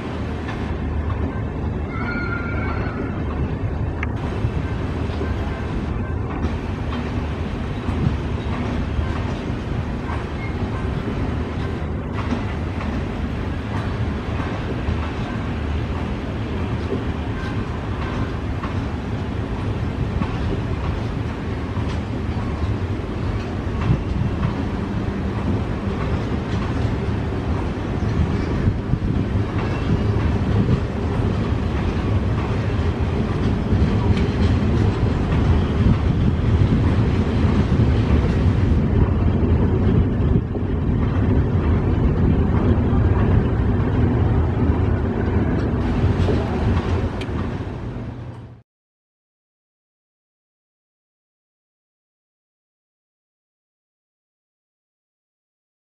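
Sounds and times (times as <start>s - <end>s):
train wheels clattering: 4.1s - 48.6s.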